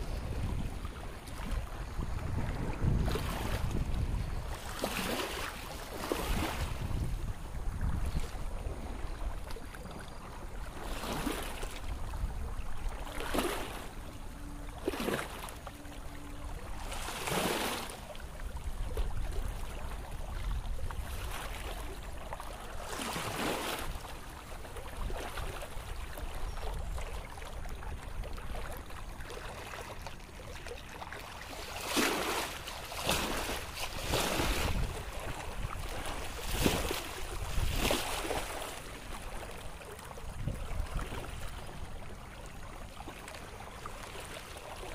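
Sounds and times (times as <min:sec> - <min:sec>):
wind buffeting microphone: 0:00.0 - 0:09.5, 0:11.6 - 0:15.3, 0:33.1 - 0:38.5, 0:40.2 - 0:42.1
floodwater rushing: 0:13.0 - 0:18.4.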